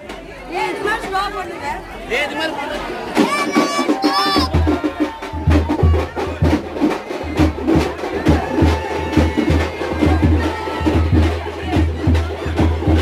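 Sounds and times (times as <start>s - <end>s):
deep booming drum beats: 3.0s - 13.0s
sharp drum strokes: 3.0s - 13.0s.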